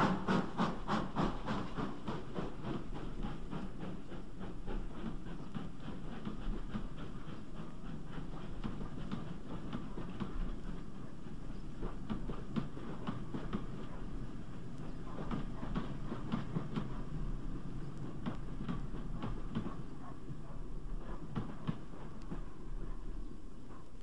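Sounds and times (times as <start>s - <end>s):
steam locomotive exhaust beating: 0.0s - 24.0s.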